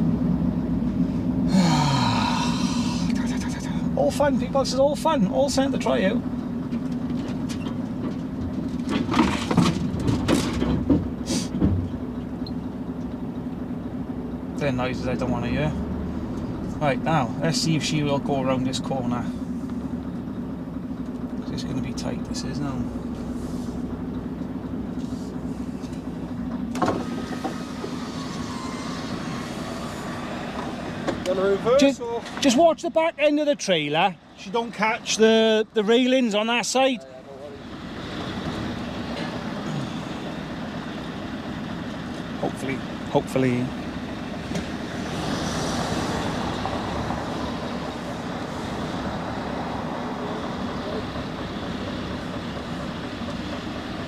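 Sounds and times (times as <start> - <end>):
lorry engine running: 0.0 - 54.0
faint thin squeal: 27.6 - 30.1.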